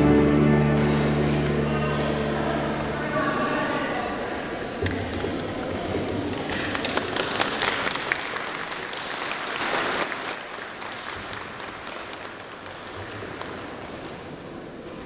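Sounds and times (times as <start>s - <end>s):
audience applauding: 6.4s - 14.0s.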